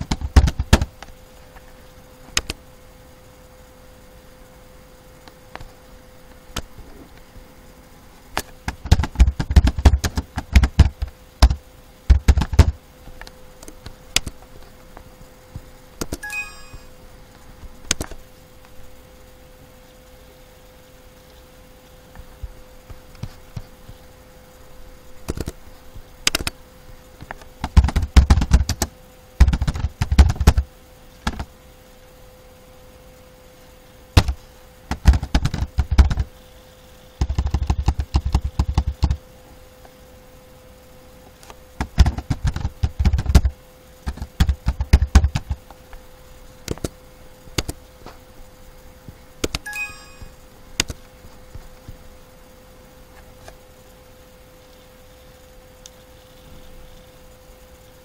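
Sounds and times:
faint steady hum: 0:00.0 - 0:58.0
computer keyboard typing: 0:44.1 - 0:45.6.

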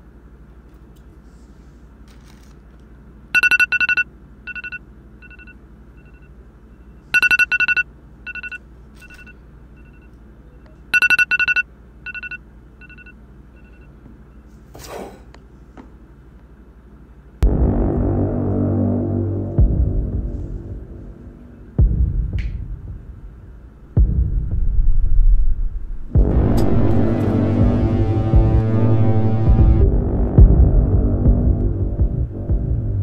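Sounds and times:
phone ringtone beeps: 0:03.4 - 0:06.3, 0:07.1 - 0:13.9.

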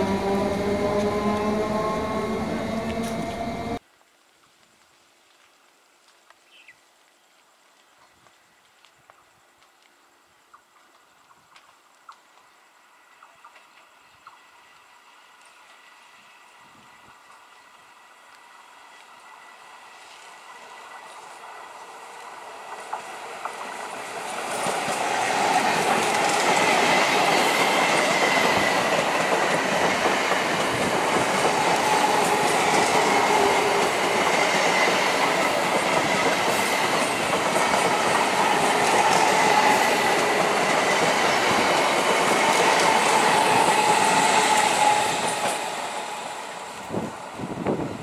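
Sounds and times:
train wheels rushing on rails: 0:00.0 - 0:03.8, 0:13.5 - 0:48.0
wavering whine: 0:00.0 - 0:03.8
clickety-clack over rail joints: 0:22.6 - 0:45.9.

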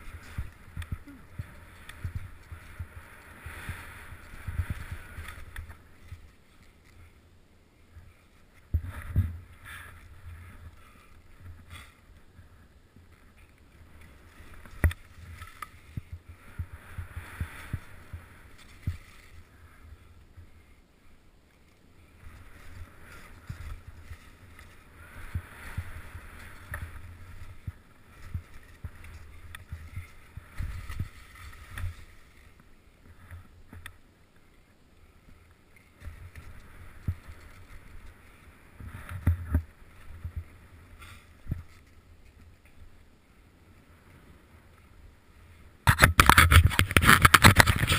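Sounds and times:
skis hissing through snow: 0:00.0 - 0:07.1, 0:13.9 - 0:19.8, 0:22.0 - 0:32.9.

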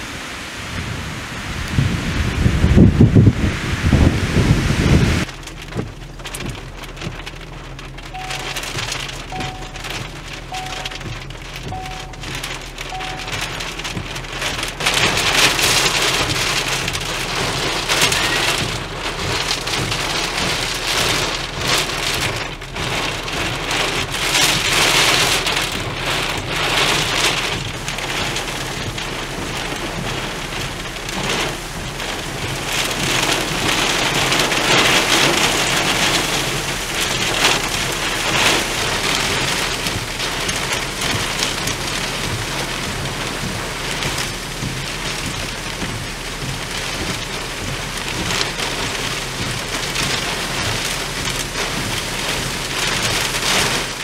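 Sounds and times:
strong wind gusts: 0:00.0 - 0:05.3
heavy rain pounding on a car: 0:00.0 - 0:54.0.

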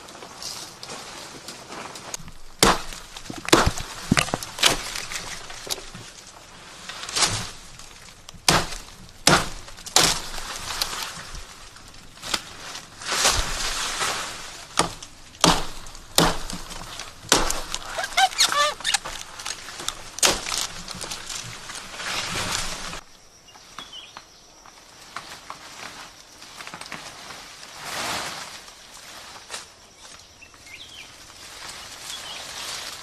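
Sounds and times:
leaves and stems rustling: 0:00.0 - 0:33.0
machete chopping plant stalks: 0:02.1 - 0:06.0, 0:08.3 - 0:11.2, 0:12.2 - 0:23.0.

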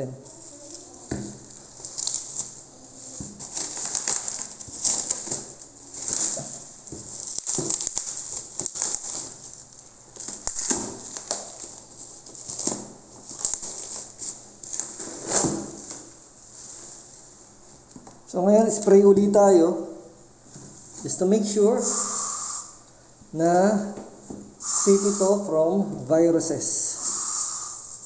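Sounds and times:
bubble wrap crinkling: 0:00.3 - 0:17.3.

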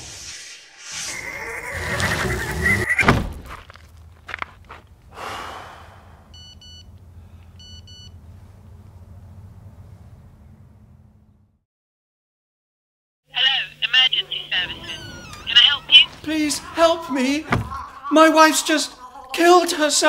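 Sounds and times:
mobile phone key beeps: 0:06.4 - 0:06.9, 0:07.6 - 0:08.1.

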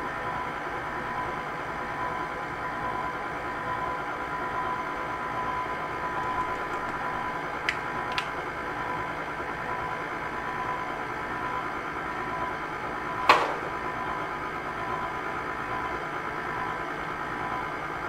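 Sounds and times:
stand mixer motor humming: 0:06.0 - 0:08.4
sharp knock: 0:13.3 - 0:13.7.

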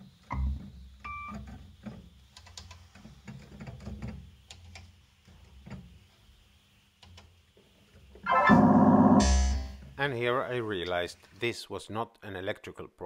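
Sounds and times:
short beep: 0:08.3 - 0:09.8.

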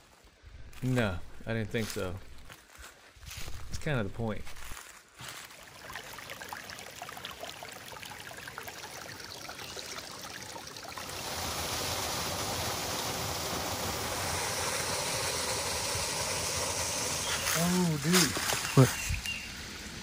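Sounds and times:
stream water flowing: 0:05.2 - 0:20.0.

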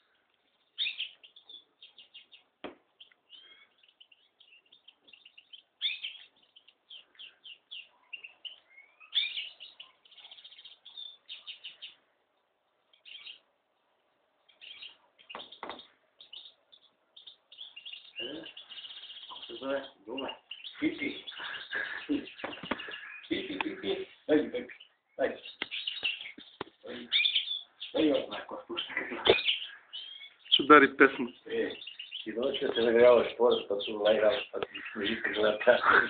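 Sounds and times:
finch chirping and trilling: 0:00.0 - 0:36.0
dull knock: 0:15.3 - 0:15.9.

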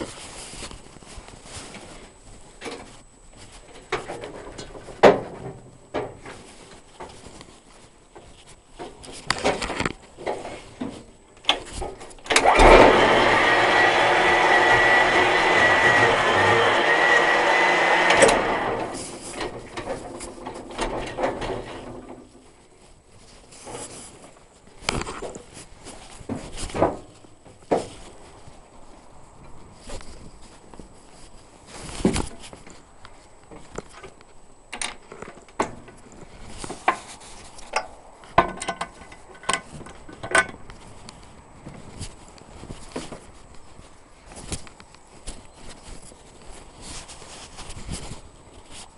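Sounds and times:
machinery whining: 0:12.3 - 0:22.0.

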